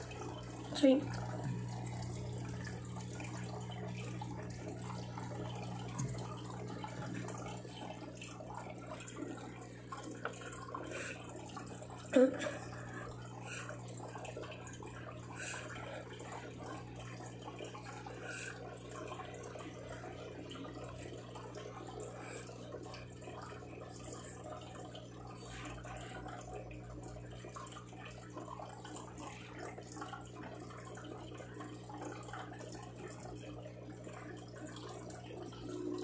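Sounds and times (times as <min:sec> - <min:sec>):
constant low hum: 0:00.0 - 0:36.0
running water trickling: 0:00.0 - 0:36.0.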